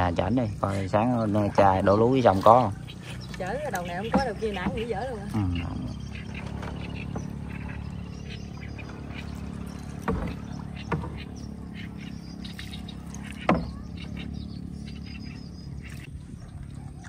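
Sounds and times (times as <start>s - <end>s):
birds chirping faintly: 0.0s - 17.0s
small engine running: 0.0s - 17.0s
sharp knocks: 9.9s - 11.4s, 13.3s - 14.0s.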